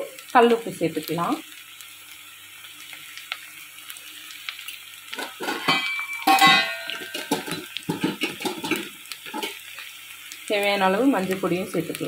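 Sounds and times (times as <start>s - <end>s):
faint sizzle: 0.0s - 12.0s
utensils clattering: 5.2s - 9.6s
spoon stirring and scraping pot: 5.2s - 9.8s
loud ringing clink: 5.7s - 7.1s.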